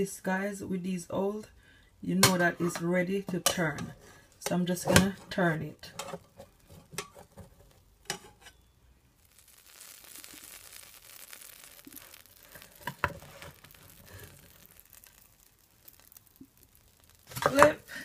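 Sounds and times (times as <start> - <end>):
metal turner scraping pan: 2.2 - 8.7, 17.2 - 18.0
pancake batter sizzling: 2.2 - 18.0.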